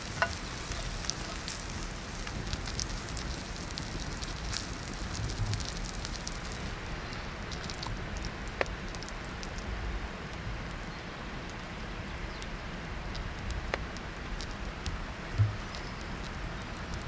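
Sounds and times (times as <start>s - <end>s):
campfire crackling: 0.0s - 17.0s
dull thump: 15.4s - 15.7s.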